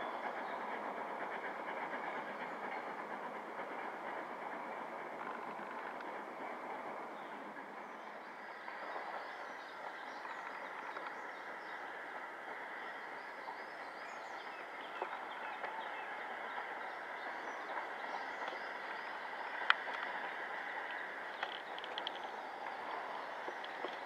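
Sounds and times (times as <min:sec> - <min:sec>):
distant steam locomotive: 0:00.0 - 0:24.0.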